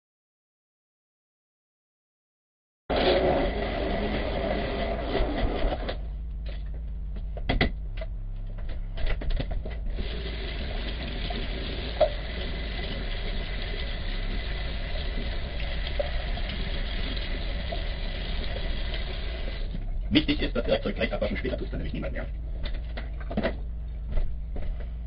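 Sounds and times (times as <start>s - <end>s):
tap running into sink: 10.0s - 19.8s.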